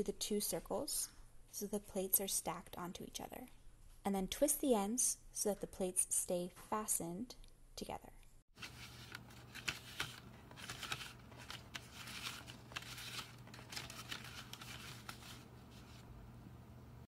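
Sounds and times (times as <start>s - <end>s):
paper plates rustling and scraping: 8.6s - 16.1s
faint steady hum: 8.6s - 17.0s.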